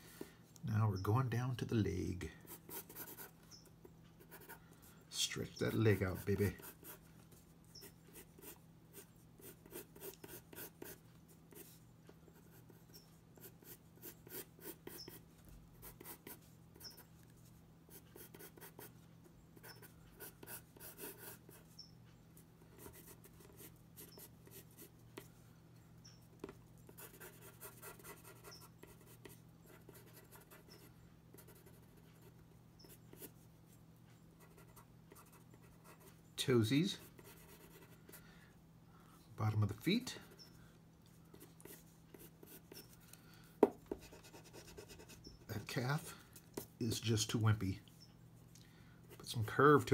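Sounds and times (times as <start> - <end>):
pencil scratching on paper: 2.4 - 3.4, 4.2 - 4.6, 5.7 - 11.8, 12.4 - 15.2, 15.8 - 17.1, 17.9 - 18.9, 19.6 - 21.8, 22.7 - 25.3, 26.4 - 33.4, 34.4 - 36.1, 36.9 - 38.2, 41.3 - 43.0, 43.9 - 45.7.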